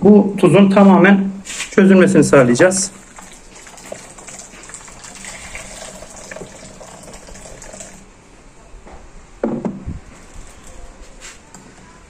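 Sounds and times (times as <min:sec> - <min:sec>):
hot water pouring into glass bowl: 0:03.0 - 0:08.1.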